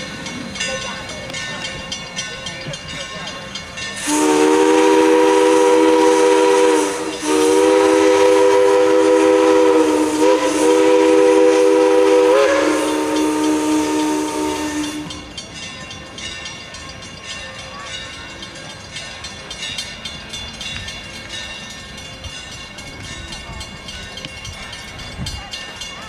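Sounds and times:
steam locomotive whistle chord: 3.8s - 15.6s
hiss of steam: 3.9s - 15.2s.

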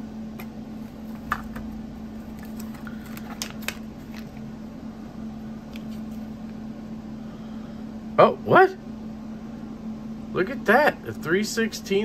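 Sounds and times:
steady low hum: 0.0s - 12.0s
plastic bag rustling: 0.8s - 4.5s.

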